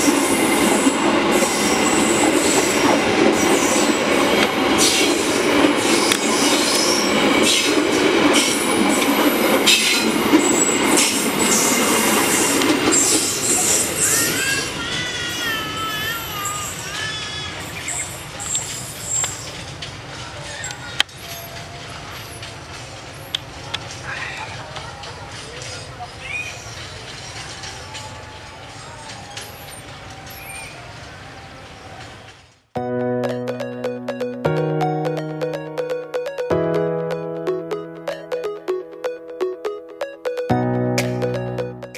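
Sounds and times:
train wheels rumbling on rail: 0.0s - 32.7s
high wheel squeal: 9.7s - 19.6s.

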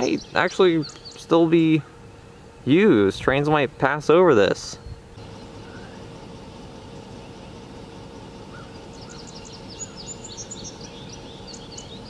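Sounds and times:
faint steady hum: 0.0s - 12.0s
songbirds chirping: 0.0s - 12.0s
steady background hiss: 0.0s - 12.0s.

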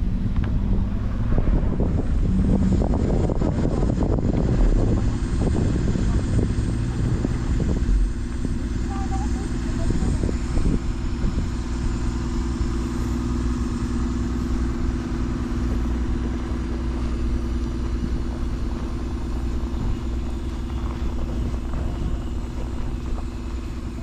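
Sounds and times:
idling engines in traffic: 0.0s - 24.0s.

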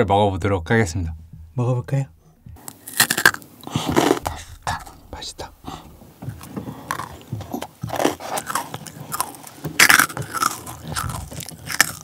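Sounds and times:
crunchy biting and chewing: 2.6s - 5.0s, 6.4s - 12.0s.

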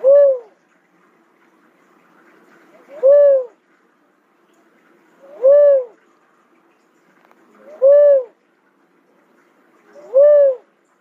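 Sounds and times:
dove hooting call: 0.0s - 0.6s, 2.8s - 3.6s, 5.2s - 6.0s, 7.6s - 8.4s, 9.9s - 10.8s.

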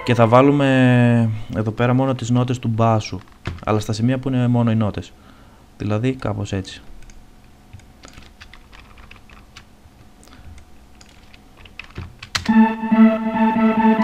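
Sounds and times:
synth melody: 0.0s - 1.4s, 12.5s - 14.0s
keyboard and mouse clicks: 7.0s - 12.5s.

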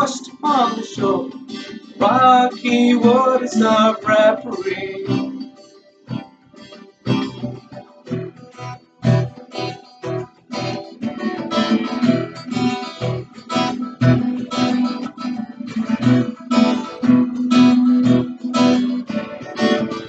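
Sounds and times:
acoustic guitar strumming: 0.0s - 20.0s.

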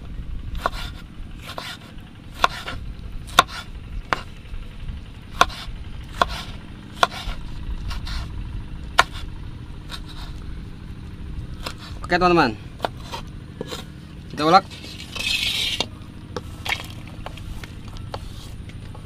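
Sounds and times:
low rumble: 0.0s - 19.0s.

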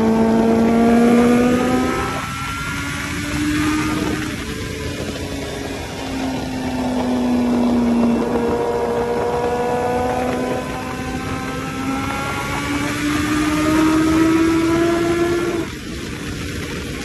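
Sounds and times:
motorcycle engine accelerating: 0.0s - 17.0s
wind noise: 0.0s - 17.0s.

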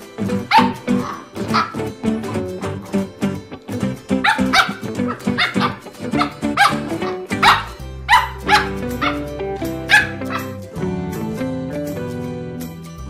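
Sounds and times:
background music with plucked notes: 0.0s - 13.0s
puppy yipping: 0.5s - 1.9s, 4.2s - 9.3s, 9.9s - 10.6s.

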